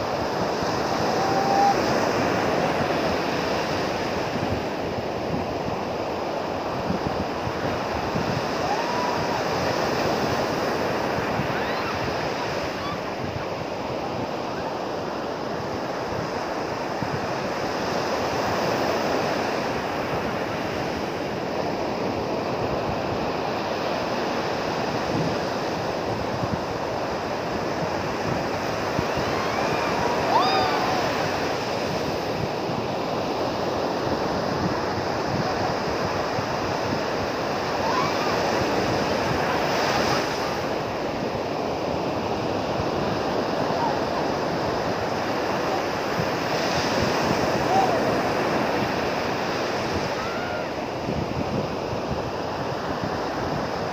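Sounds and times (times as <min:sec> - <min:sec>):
ocean surf breaking: 0:00.0 - 0:53.9
wind on microphone: 0:00.0 - 0:53.9
distant cry: 0:00.9 - 0:03.0, 0:08.6 - 0:09.7, 0:28.9 - 0:31.9.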